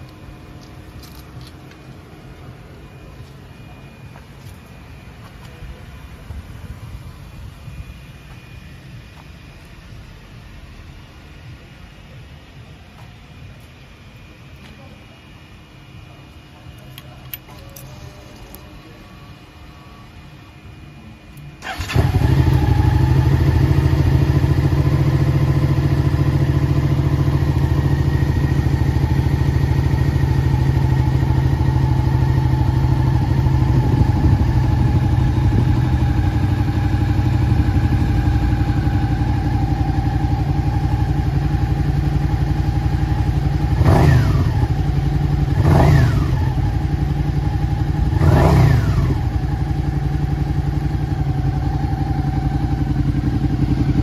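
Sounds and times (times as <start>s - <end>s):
motorcycle engine starting and idling: 21.3s - 54.0s
engine revving: 43.7s - 46.8s, 47.9s - 49.6s.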